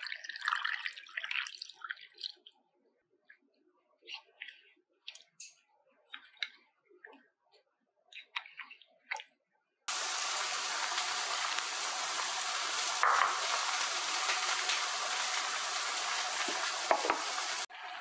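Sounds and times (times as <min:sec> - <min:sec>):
broth boiling hard: 0:09.9 - 0:18.0.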